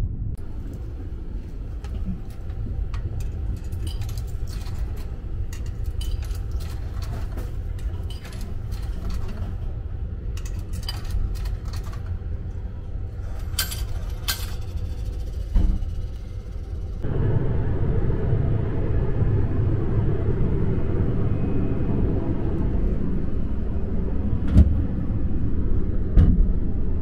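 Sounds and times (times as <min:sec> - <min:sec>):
train rumble: 0:00.0 - 0:27.0
coins clinking into machine: 0:10.4 - 0:12.1, 0:13.3 - 0:15.4.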